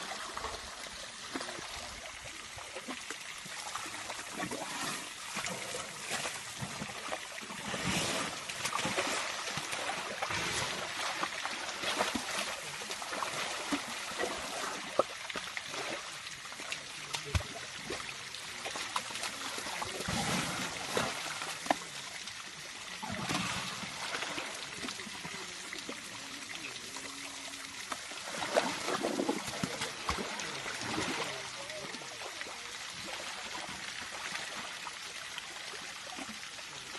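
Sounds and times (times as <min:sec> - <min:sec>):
wet mud sloshing and splashing: 0:04.1 - 0:16.0, 0:27.9 - 0:31.4.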